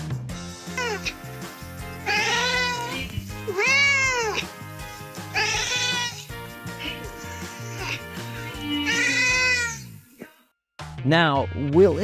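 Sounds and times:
cat meowing: 0:02.1 - 0:04.5, 0:05.4 - 0:06.2, 0:08.6 - 0:09.8.

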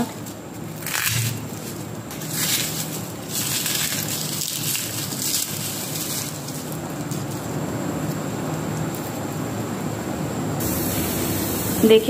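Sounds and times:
garlic skins crackling and rustling: 0:00.0 - 0:09.6
steady low hum: 0:00.0 - 0:12.0.

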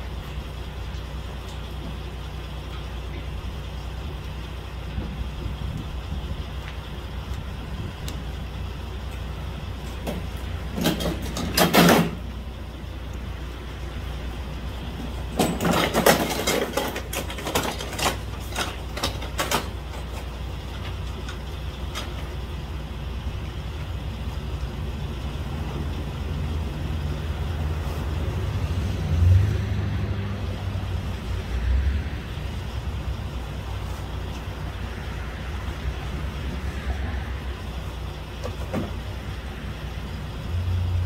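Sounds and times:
vehicle engine idling: 0:00.0 - 0:41.0
sharp crackles and clatter: 0:15.0 - 0:22.6.

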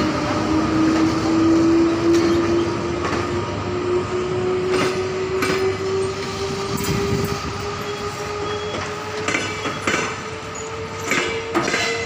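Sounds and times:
electric locomotive whine: 0:00.0 - 0:12.0
wheels clicking on rails: 0:04.6 - 0:12.0.

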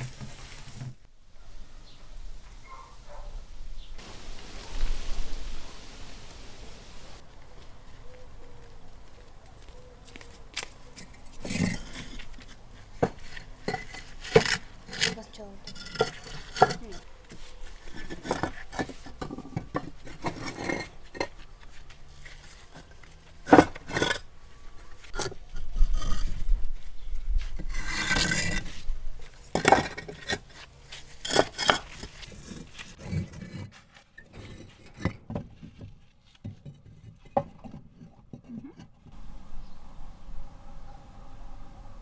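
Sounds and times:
brick scraping on brick: 0:11.0 - 0:21.4, 0:22.3 - 0:24.3, 0:25.1 - 0:26.5, 0:27.5 - 0:39.2.

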